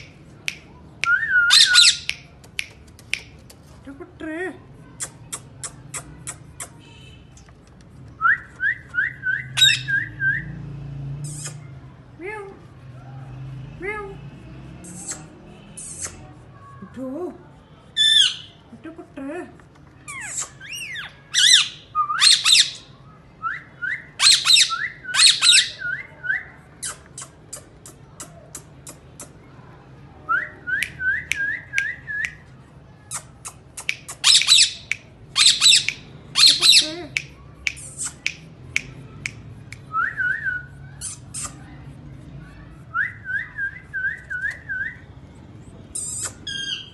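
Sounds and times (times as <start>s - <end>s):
parakeets chirping: 1.4s - 2.1s, 9.4s - 10.1s, 20.1s - 22.9s, 24.2s - 25.8s, 33.1s - 37.1s
sharp clicks: 1.9s - 3.6s
parakeet screeching: 9.6s - 9.9s, 20.1s - 22.8s, 34.2s - 36.9s.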